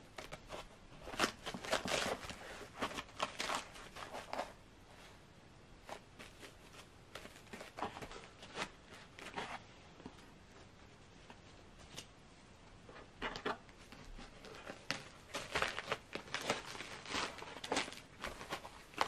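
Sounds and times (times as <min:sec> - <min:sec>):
foam packing rustling and creaking: 0:00.2 - 0:04.5, 0:13.2 - 0:19.0.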